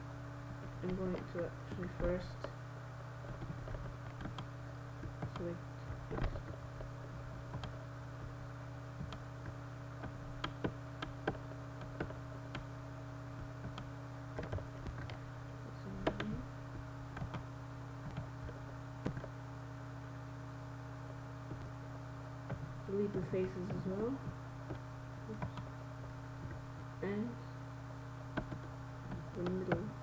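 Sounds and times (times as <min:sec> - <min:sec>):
low electrical hum: 0:00.0 - 0:30.0
keyboard and mouse clicks: 0:03.3 - 0:04.5, 0:07.5 - 0:07.8, 0:09.0 - 0:12.7, 0:13.6 - 0:15.2, 0:16.0 - 0:16.4, 0:17.1 - 0:17.4, 0:18.0 - 0:19.3, 0:28.4 - 0:29.8.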